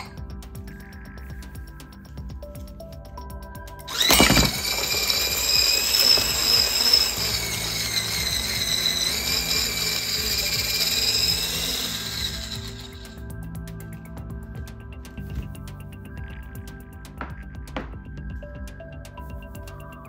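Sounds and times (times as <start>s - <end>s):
immersion blender motor whine: 3.9s - 13.3s.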